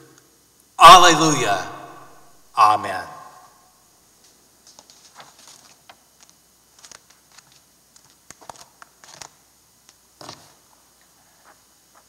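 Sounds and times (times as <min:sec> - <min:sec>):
papers rustling and clicking: 0:04.6 - 0:10.7.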